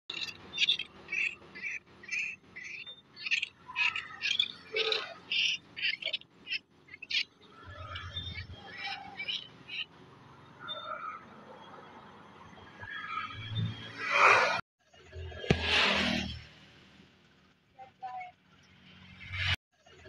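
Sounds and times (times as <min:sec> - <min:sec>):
baby monkey squealing: 0:00.1 - 0:09.9.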